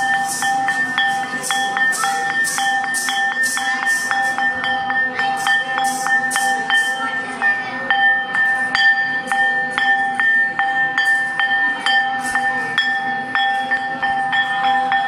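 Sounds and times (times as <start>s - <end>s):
metal bell ringing: 0.0s - 15.0s.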